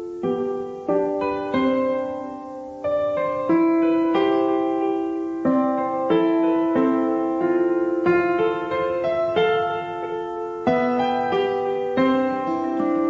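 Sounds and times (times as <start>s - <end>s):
soft piano music: 0.0s - 13.0s.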